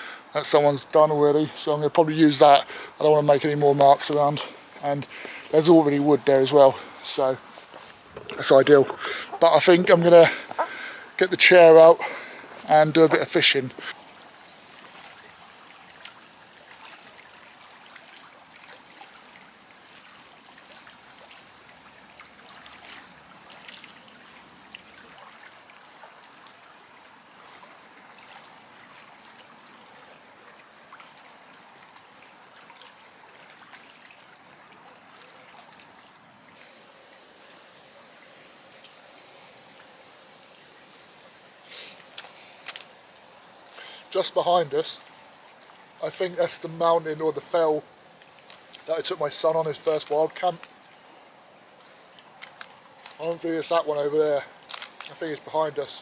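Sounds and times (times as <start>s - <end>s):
small waves lapping on stony shore: 13.8s - 38.0s, 49.8s - 56.0s.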